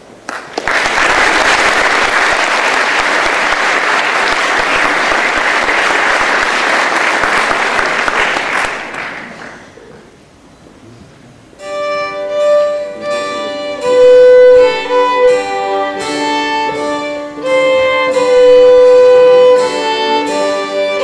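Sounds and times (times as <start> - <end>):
audience applause: 0.3 - 9.9.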